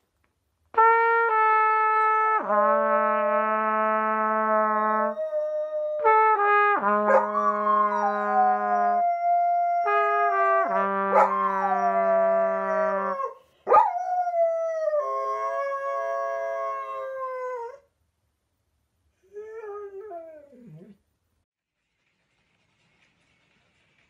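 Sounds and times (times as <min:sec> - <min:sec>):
long held brass-like notes: 0:00.8 - 0:05.4, 0:06.0 - 0:09.0, 0:09.7 - 0:13.3
dog howling: 0:07.1 - 0:17.8.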